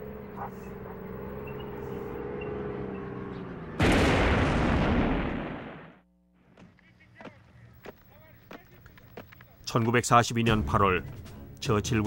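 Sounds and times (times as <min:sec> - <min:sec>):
loud explosion: 0:03.8 - 0:06.0.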